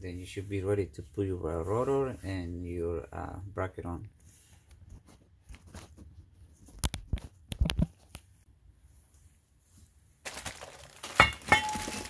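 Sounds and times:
rustling: 4.2 - 12.0.

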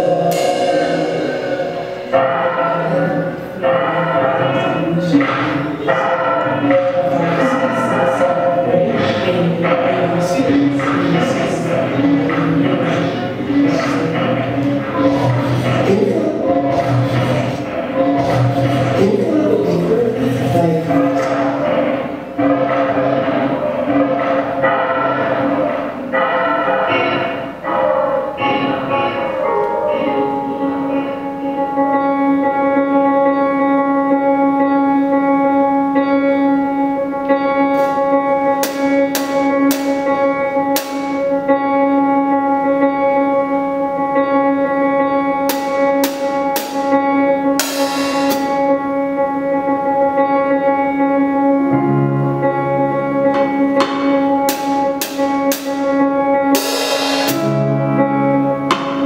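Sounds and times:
bass notes: 0.0 - 59.0
keyboard drone: 0.0 - 59.0
drums and cymbals: 47.6 - 48.5, 56.6 - 57.4.

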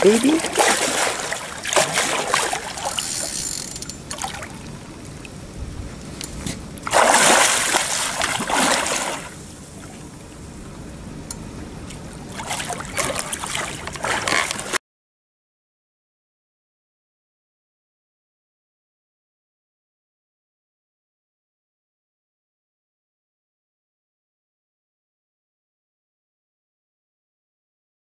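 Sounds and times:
fish thrashing and splashing: 0.0 - 3.4, 6.8 - 9.4, 12.3 - 14.8.

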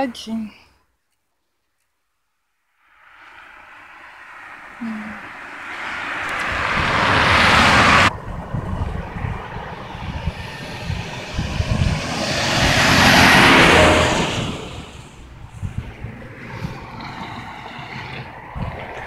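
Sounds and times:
vehicles passing on road: 2.6 - 19.0
pickup truck passing: 2.8 - 19.0
low unsteady rumble: 6.5 - 17.0.

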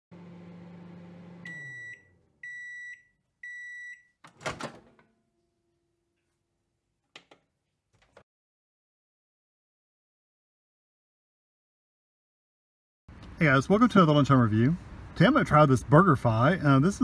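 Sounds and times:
microwave oven humming: 0.1 - 3.6
microwave beeps: 1.1 - 4.2
microwave door opening clunk: 4.3 - 5.1.

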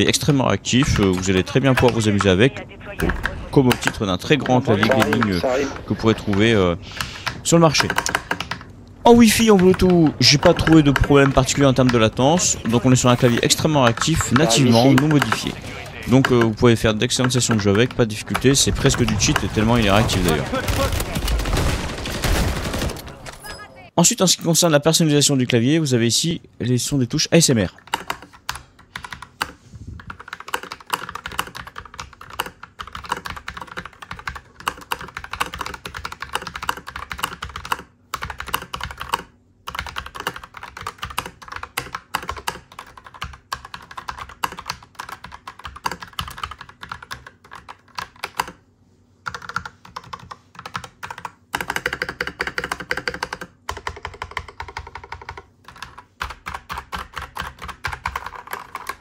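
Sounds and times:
mechanical keyboard typing: 0.8 - 2.3, 6.2 - 21.4, 27.8 - 48.6, 49.2 - 59.0.

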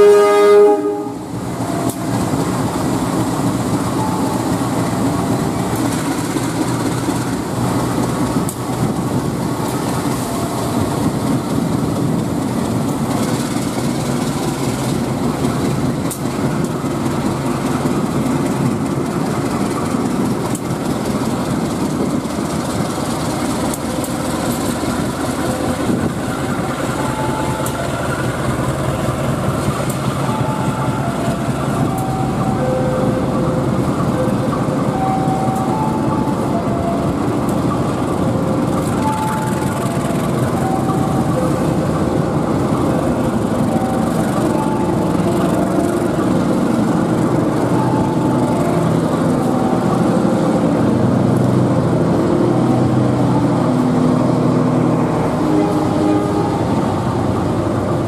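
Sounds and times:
train horn blast: 0.0 - 2.1, 55.2 - 57.1
locomotive engine running: 0.0 - 58.0.

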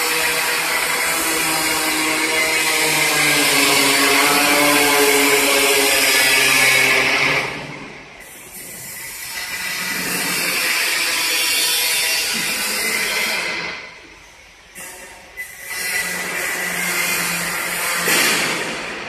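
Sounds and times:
machine hum with whine: 0.0 - 19.0.

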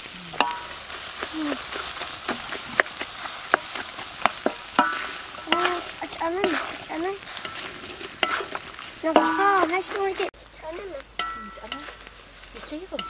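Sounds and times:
food sizzling in a wok: 0.0 - 13.0
spatula scraping metal pan: 0.3 - 10.3, 11.2 - 13.0.

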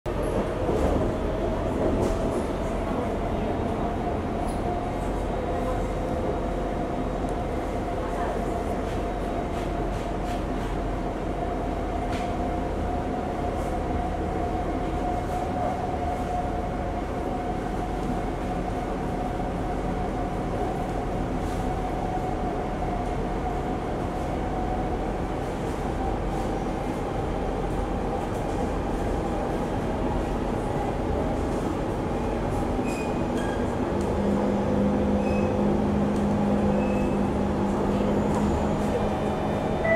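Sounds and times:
train wheels rumbling on track: 0.1 - 39.9
train whine: 33.3 - 39.9.

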